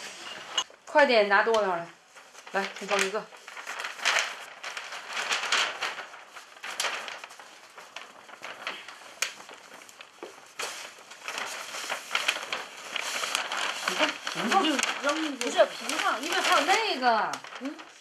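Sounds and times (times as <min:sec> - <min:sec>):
paper bag rustling and crackling: 0:00.0 - 0:18.0.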